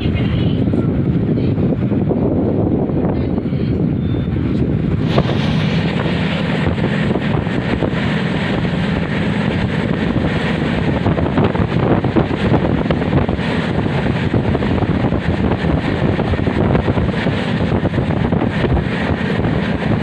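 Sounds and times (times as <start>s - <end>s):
train rumbling on track: 0.0s - 20.0s
wind buffeting microphone: 0.0s - 20.0s.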